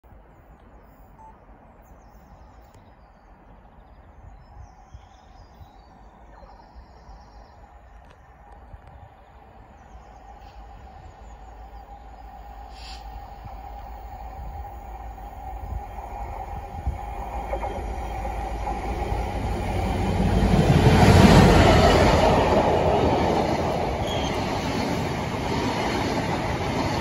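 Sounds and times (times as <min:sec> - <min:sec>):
birds chirping: 0:00.3 - 0:27.0
approaching train hum: 0:05.8 - 0:27.0.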